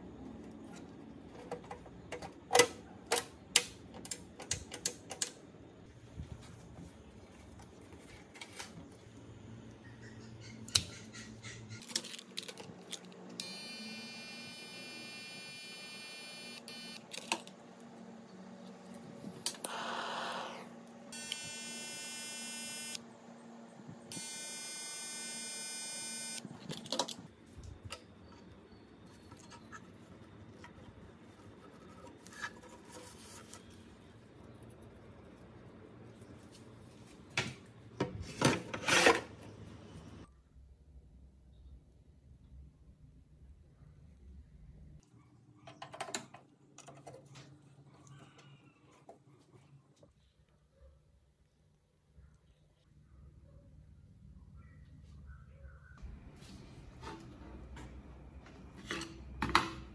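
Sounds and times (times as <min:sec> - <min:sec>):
soldering gun buzzing: 0:13.4 - 0:17.1, 0:19.5 - 0:23.0, 0:24.1 - 0:26.5.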